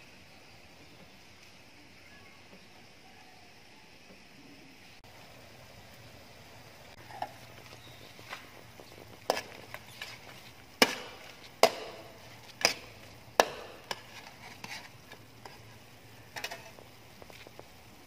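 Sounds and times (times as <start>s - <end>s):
spatula scraping a metal wok: 9.2s - 16.8s.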